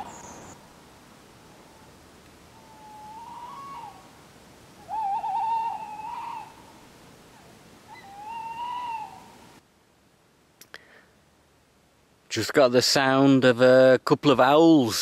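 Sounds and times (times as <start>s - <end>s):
owls hooting: 2.5s - 4.1s, 4.8s - 6.7s, 7.3s - 9.4s.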